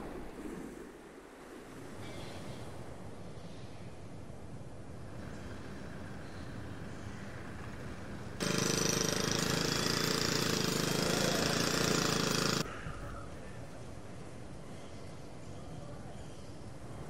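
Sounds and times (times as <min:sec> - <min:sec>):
faint street background: 0:02.0 - 0:17.0
jackhammer hammering: 0:08.3 - 0:12.7.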